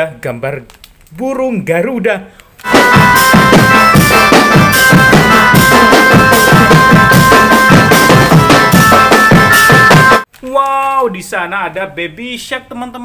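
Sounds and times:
reedy wind instrument melody: 2.6 - 10.3
steady drum beat: 2.7 - 10.3.

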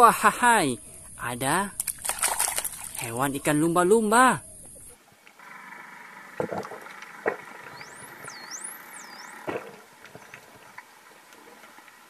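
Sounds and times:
steady hum: 0.0 - 12.0
dolphin whistling: 7.7 - 9.5.

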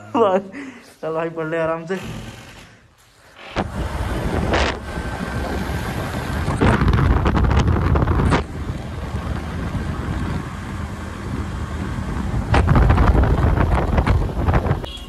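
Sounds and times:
wind buffeting microphone: 3.6 - 15.0.

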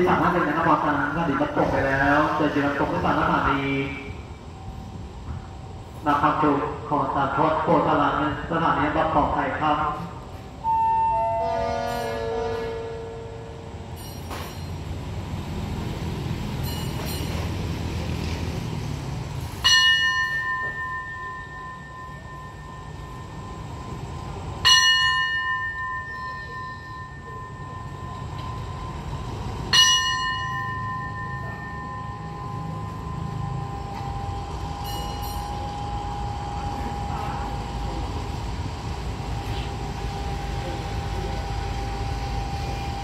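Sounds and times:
diesel train rumbling: 0.0 - 43.0
station bell ringing: 0.0 - 43.0
falling chime notes: 19.6 - 38.0.

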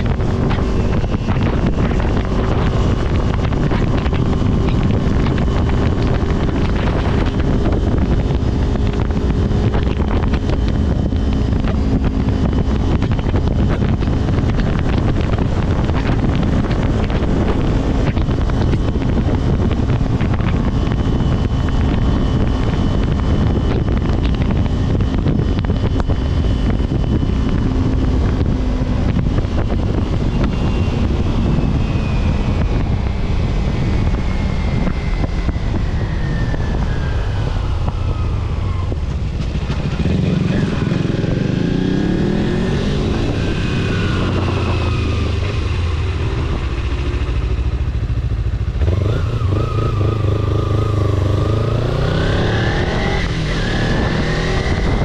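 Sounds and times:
vehicle engine running: 0.0 - 55.0
wind buffeting microphone: 0.0 - 55.0.

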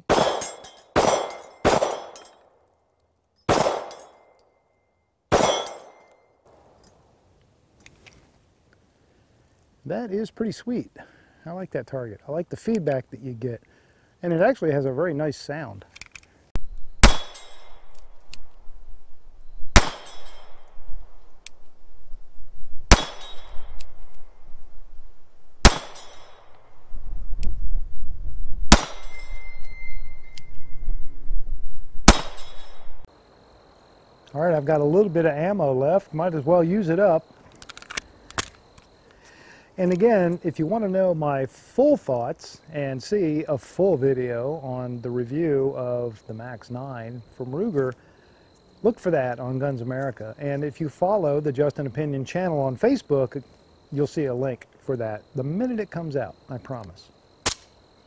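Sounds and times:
pistol shots: 0.0 - 2.3, 3.5 - 4.2, 5.3 - 6.0, 17.0 - 17.8, 19.7 - 20.5, 22.9 - 23.8, 25.6 - 26.3, 28.7 - 29.2, 32.1 - 32.7
steel target ringing: 5.3 - 6.3, 17.0 - 17.9, 19.7 - 20.7, 22.9 - 23.8, 25.6 - 26.6, 28.7 - 30.4, 32.1 - 32.9.

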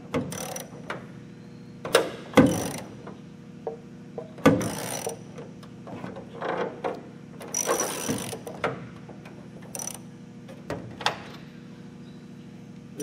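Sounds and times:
socket ratchet clicking: 0.3 - 0.7, 9.7 - 10.0.

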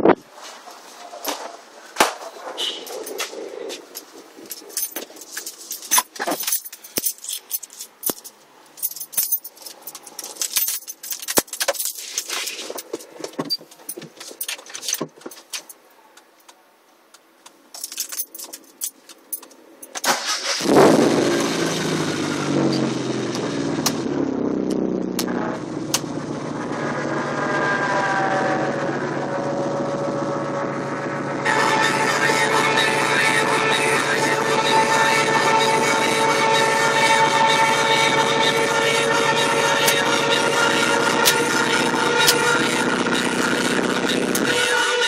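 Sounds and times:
clicks knocks and jingling: 4.5 - 16.6, 17.2 - 20.0
car engine starting and idling: 17.8 - 44.9.

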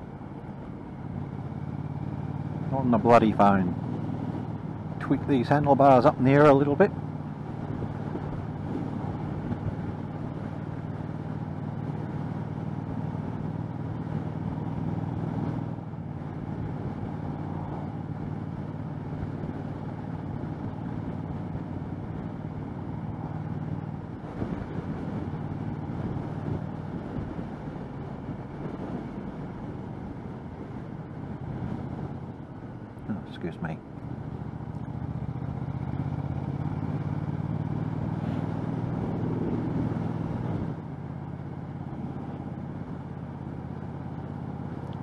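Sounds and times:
motorcycle engine running: 0.0 - 45.0
wind noise on microphone: 7.6 - 9.9, 24.0 - 32.3, 38.8 - 40.8.

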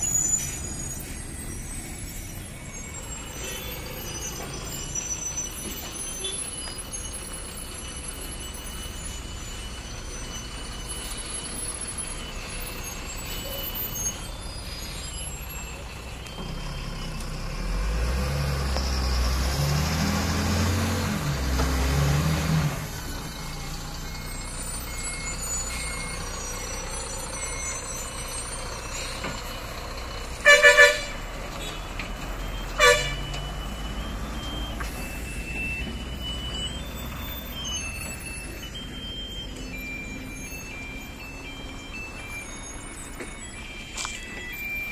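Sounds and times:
lorry diesel engine rumbling: 0.0 - 44.9
air horn blasts: 30.4 - 31.7, 32.8 - 33.2.

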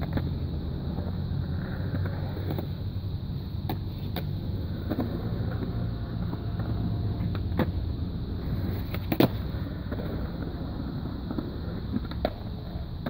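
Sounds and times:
skateboard clacks: 0.0 - 2.8, 3.6 - 7.8, 8.4 - 13.0
skateboard rolling on concrete: 0.0 - 13.0.

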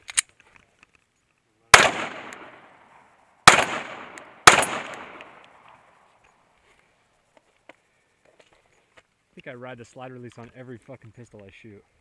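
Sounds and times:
pistol shots with echo: 1.7 - 2.8, 3.4 - 5.7.

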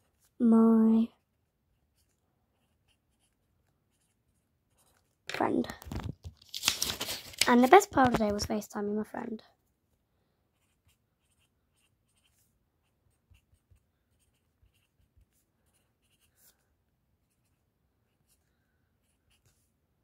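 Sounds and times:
marker scratching on paper: 1.8 - 5.0, 10.5 - 16.6, 19.0 - 19.7.

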